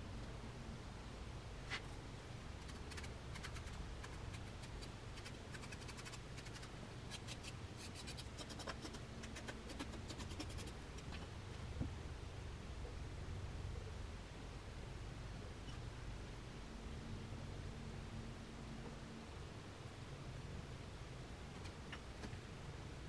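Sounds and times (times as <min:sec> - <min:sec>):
hand tool scratching clay: 0:02.6 - 0:11.2.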